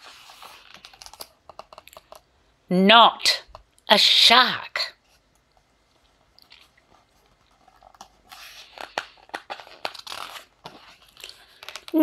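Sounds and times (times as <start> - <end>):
paper page rustling: 0.0 - 1.9, 5.0 - 12.0.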